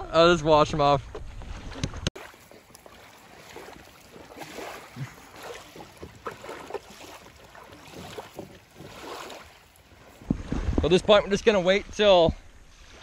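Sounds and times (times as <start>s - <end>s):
wind noise: 10.0s - 13.0s.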